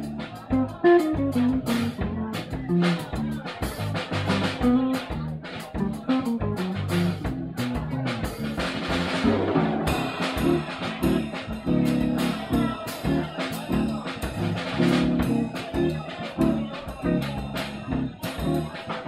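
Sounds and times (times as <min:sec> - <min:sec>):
stepping bass notes: 0:00.0 - 0:19.0
electric guitar: 0:09.2 - 0:13.2.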